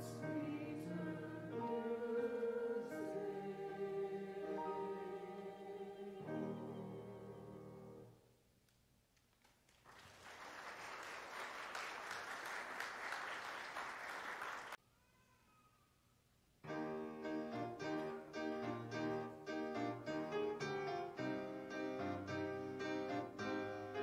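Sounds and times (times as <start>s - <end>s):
audience applauding: 9.4s - 14.8s
piano rhythmic accompaniment: 16.6s - 24.0s.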